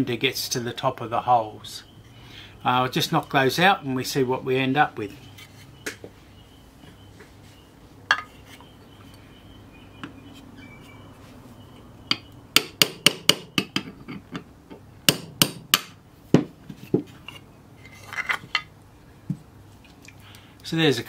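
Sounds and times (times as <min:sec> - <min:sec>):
hammer tapping a pin punch: 0:12.1 - 0:13.9.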